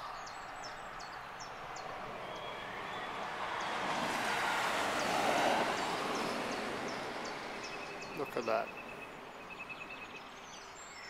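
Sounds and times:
vehicle passing: 1.7s - 9.3s.

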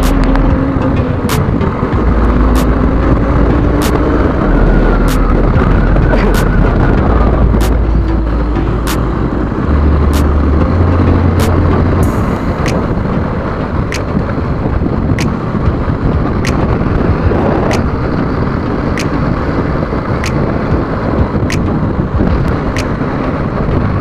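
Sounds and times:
sharp clicks: 0.0s - 0.4s, 5.1s - 5.3s
motorcycle engine and road rumble: 0.0s - 24.0s
wind on microphone: 0.0s - 24.0s.

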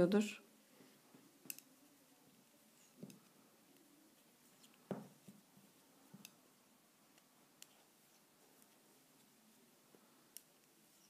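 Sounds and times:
knitting needles clicking: 1.4s - 1.8s, 2.8s - 9.4s, 10.2s - 11.0s.

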